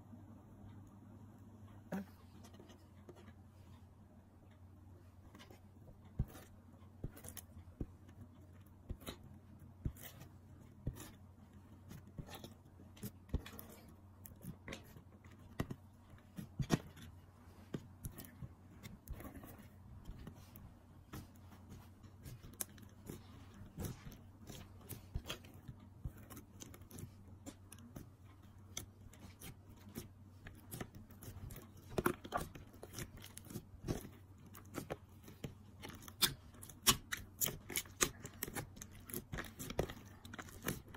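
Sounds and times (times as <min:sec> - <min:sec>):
low steady hum: 0:00.0 - 0:40.9.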